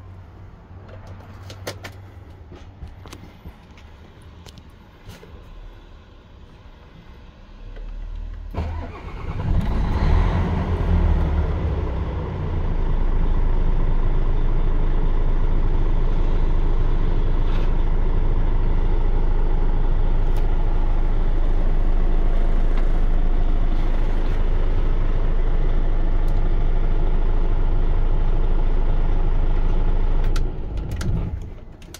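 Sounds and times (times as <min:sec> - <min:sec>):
diesel engine idling: 0:02.0 - 0:31.9
diesel truck engine starting: 0:05.4 - 0:31.9.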